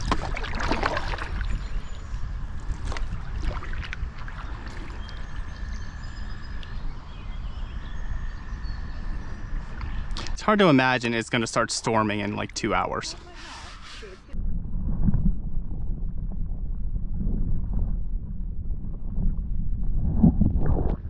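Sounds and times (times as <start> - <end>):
water splashing at paddle: 0.0 - 1.8, 2.6 - 5.4.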